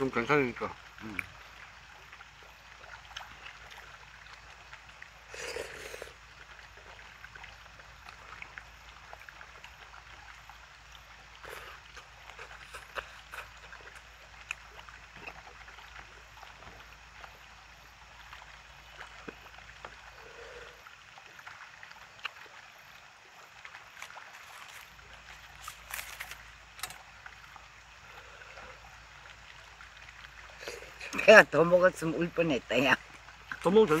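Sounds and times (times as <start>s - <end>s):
faint outdoor hiss: 0.0s - 34.0s
chewing: 11.4s - 15.5s, 23.9s - 27.0s.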